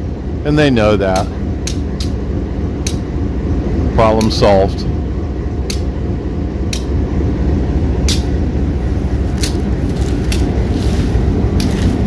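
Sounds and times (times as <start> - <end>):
diesel locomotive engine rumbling: 0.0 - 12.0
sharp click: 1.2 - 2.2, 5.7 - 5.9, 6.7 - 6.9.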